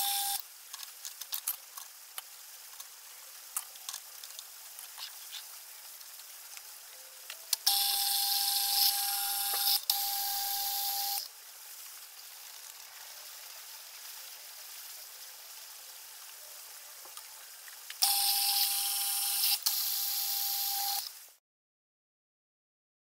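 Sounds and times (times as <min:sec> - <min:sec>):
faint hiss: 0:00.0 - 0:21.4
sped-up milling machine whine: 0:07.7 - 0:11.2.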